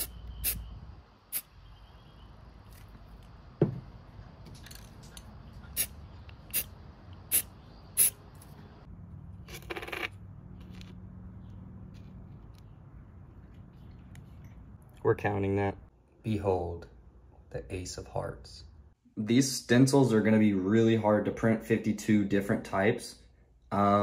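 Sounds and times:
knock: 0:03.6 - 0:03.9
spray can long hiss: 0:07.3 - 0:08.2
spray can spritzes: 0:07.3 - 0:08.2.

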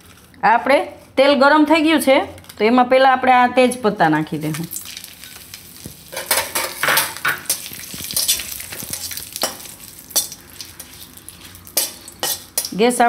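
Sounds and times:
leaves sizzling in hot oil: 0:04.4 - 0:12.8
crackles and pops: 0:04.5 - 0:06.3, 0:07.3 - 0:11.3.

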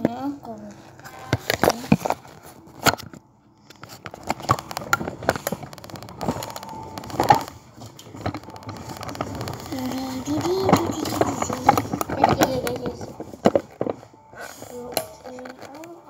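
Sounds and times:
rustling: 0:00.5 - 0:16.0
objects knocking and clicking: 0:01.1 - 0:16.0.

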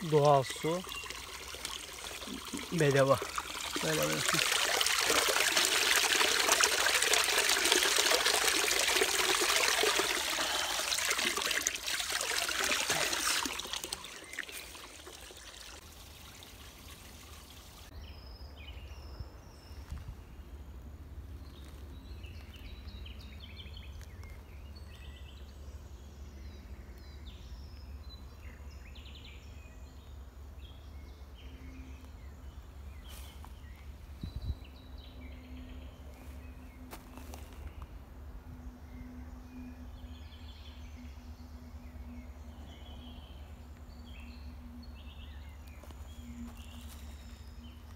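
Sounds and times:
water splashing into stone trough: 0:00.0 - 0:17.9
birds chirping: 0:00.0 - 0:20.6.

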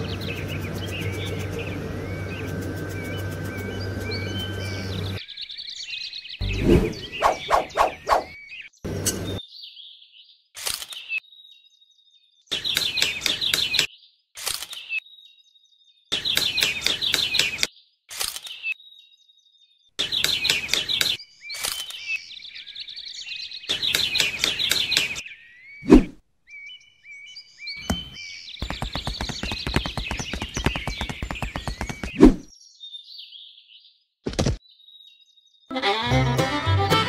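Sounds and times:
birds chattering: 0:00.0 - 0:09.4, 0:12.5 - 0:13.9, 0:16.1 - 0:17.7, 0:20.0 - 0:26.0, 0:26.6 - 0:32.3.

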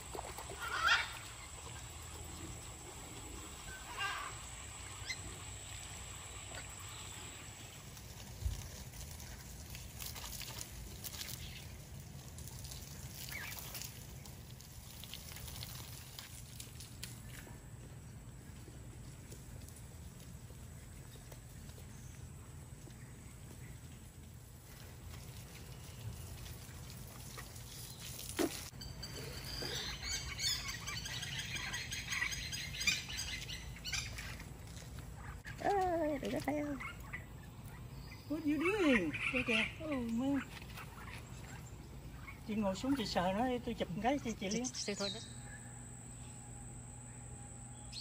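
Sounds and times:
small birds chirping: 0:00.5 - 0:16.2, 0:20.5 - 0:48.0
rising bird chirp: 0:28.8 - 0:34.2, 0:44.3 - 0:48.0.

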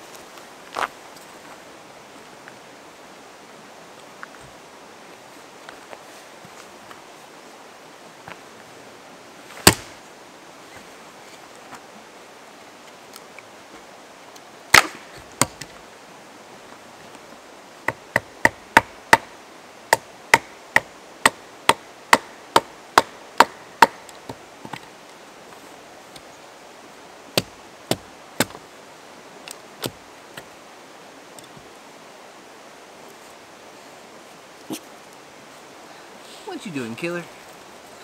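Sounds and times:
stream rushing: 0:00.0 - 0:38.0
axe chopping wood: 0:09.6 - 0:10.0, 0:14.7 - 0:15.7, 0:17.9 - 0:19.3, 0:19.9 - 0:24.0, 0:27.4 - 0:28.6.

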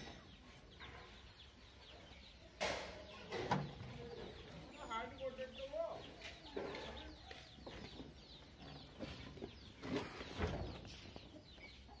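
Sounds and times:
chickens clucking: 0:00.0 - 0:12.0
small birds chirping: 0:00.0 - 0:12.0.

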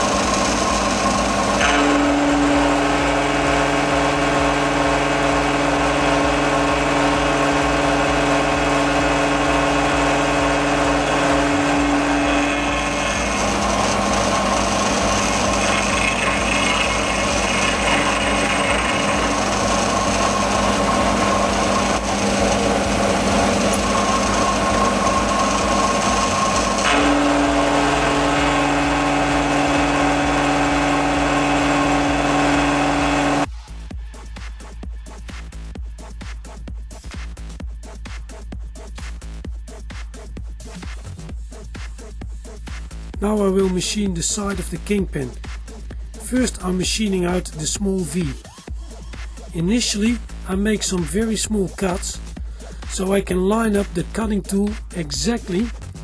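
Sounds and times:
milling machine cutting metal: 0:00.0 - 0:33.5.

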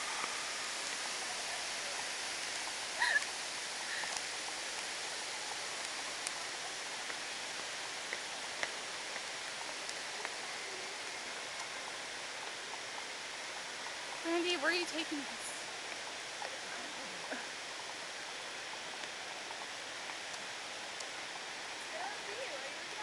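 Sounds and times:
indoor waterfall rushing: 0:00.0 - 0:23.0
faint clicks: 0:02.4 - 0:04.9, 0:05.8 - 0:11.8.

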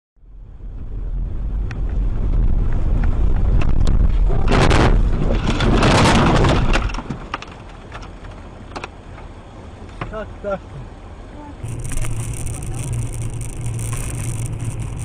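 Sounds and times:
car rumbling: 0:00.2 - 0:15.0
rushing noise: 0:11.6 - 0:15.0
sharp clicks: 0:11.6 - 0:15.0.

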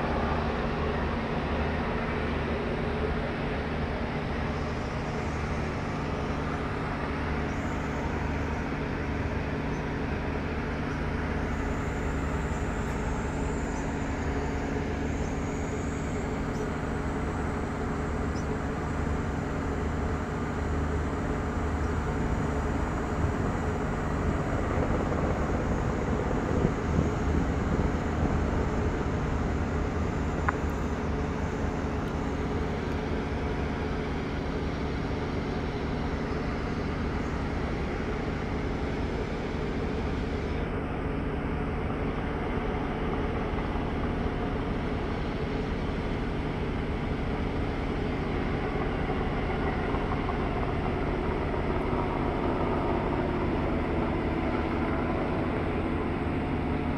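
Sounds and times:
boat engine droning: 0:00.0 - 0:56.9.

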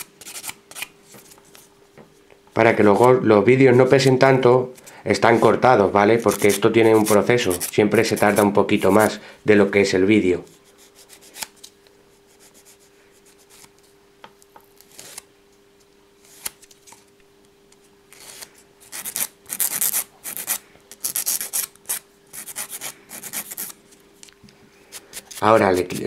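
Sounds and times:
nail file rasping: 0:06.2 - 0:09.0, 0:18.9 - 0:23.8.

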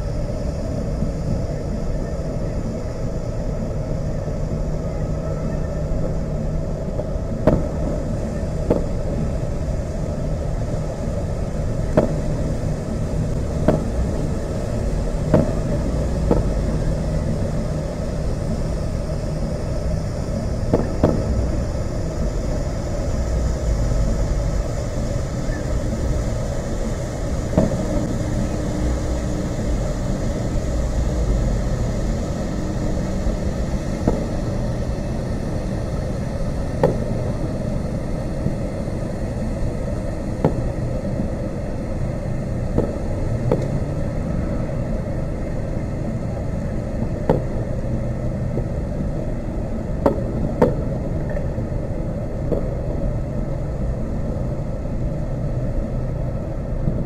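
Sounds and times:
steady low rumble: 0:00.0 - 0:57.0
distant fireworks bangs: 0:07.0 - 0:08.0, 0:08.6 - 0:09.0, 0:13.6 - 0:14.2, 0:15.2 - 0:16.8, 0:20.7 - 0:21.6.

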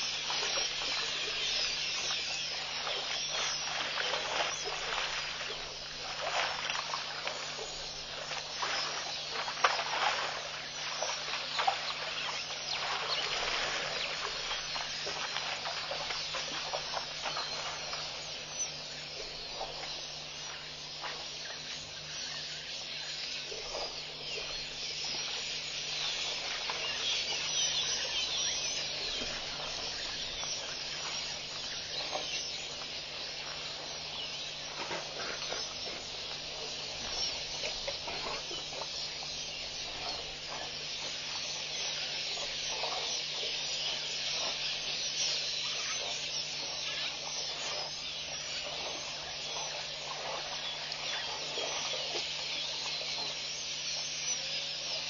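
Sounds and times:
low constant hum: 0:00.0 - 0:55.0.

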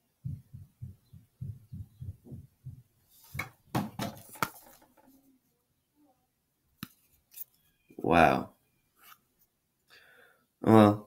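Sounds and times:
card handling thumps: 0:03.4 - 0:04.9.

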